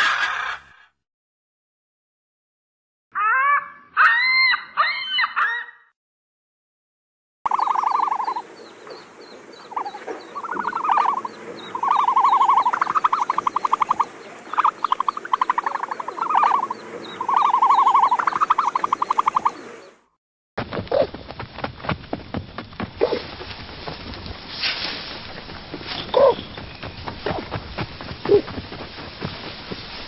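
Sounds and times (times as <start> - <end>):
rapid pulsed trilling calls: 7.5 - 8.5, 9.6 - 19.9
small birds chirping faintly: 7.5 - 20.0, 25.1 - 30.0.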